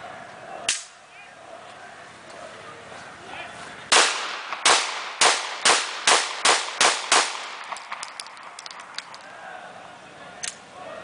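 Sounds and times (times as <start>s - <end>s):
pistol shots: 3.9s - 9.2s.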